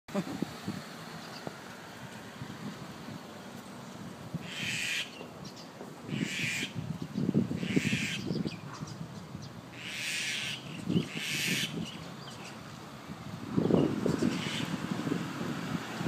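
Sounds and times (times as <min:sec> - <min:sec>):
mynah bird harsh raspy calls: 0:04.4 - 0:06.8, 0:07.6 - 0:09.0, 0:09.7 - 0:12.6, 0:14.0 - 0:14.8.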